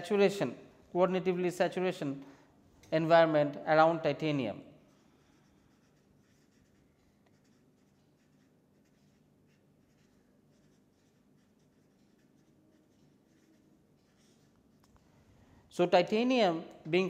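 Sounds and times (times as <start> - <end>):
marker scratching on paper: 4.8 - 15.0.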